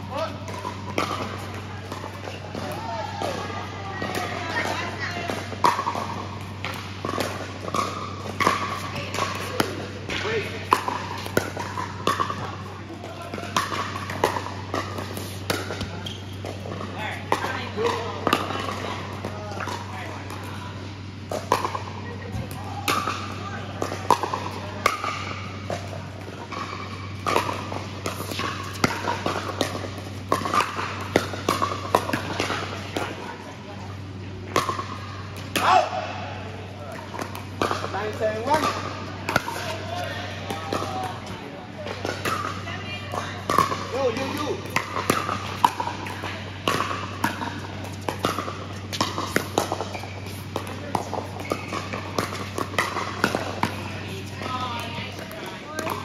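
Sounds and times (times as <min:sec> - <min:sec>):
steady low hum: 0:00.0 - 0:56.0
paddles striking ball: 0:41.9 - 0:56.0.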